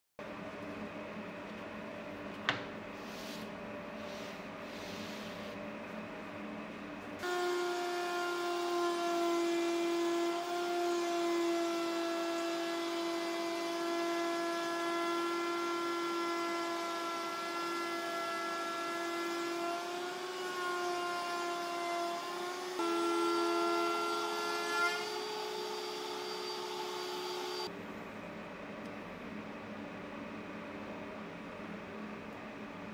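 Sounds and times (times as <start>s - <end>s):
router whining while cutting wood: 7.2s - 27.7s.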